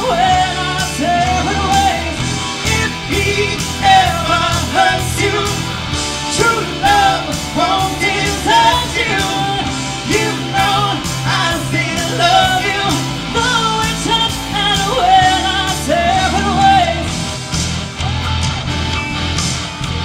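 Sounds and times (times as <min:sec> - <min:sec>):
bass guitar: 0:00.0 - 0:20.0
electric guitar: 0:00.0 - 0:20.0
rock band playing: 0:00.0 - 0:20.0
woman singing: 0:06.4 - 0:17.1.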